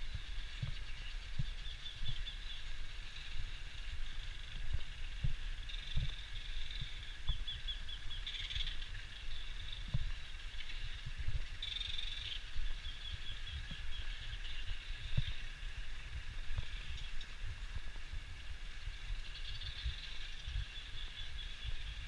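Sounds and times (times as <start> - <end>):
chorus of birds chattering: 0.0 - 15.6, 19.2 - 22.0
low thumps and rumble: 4.5 - 8.0, 9.8 - 11.6.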